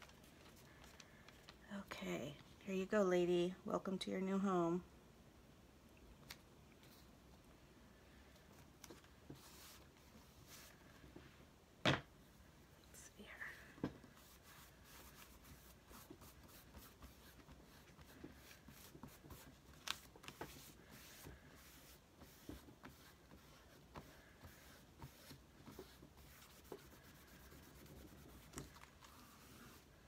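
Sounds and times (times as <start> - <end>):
cloth rubbing on paper: 9.3 - 10.9, 14.0 - 30.0.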